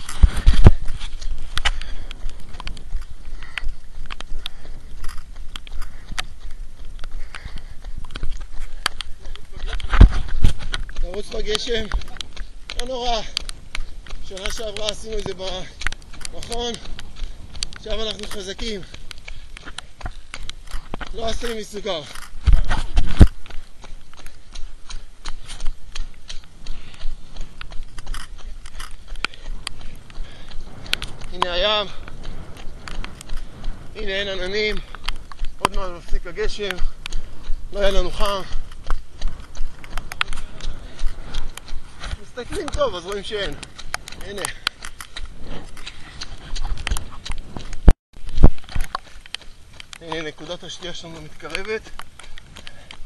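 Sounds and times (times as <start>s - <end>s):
camera handling rumble: 0.0s - 11.0s, 22.1s - 23.6s, 27.6s - 31.4s
low wind rumble on microphone: 0.0s - 53.0s
running footsteps on wet pavement: 0.0s - 53.0s.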